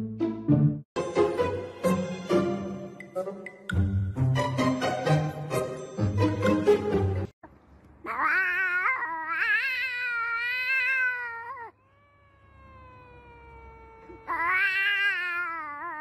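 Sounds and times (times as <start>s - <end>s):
cat yowling: 8.0s - 16.0s.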